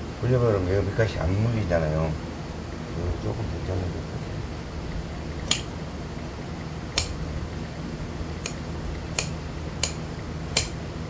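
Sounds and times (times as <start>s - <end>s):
shears snipping fabric: 8.4s - 8.6s.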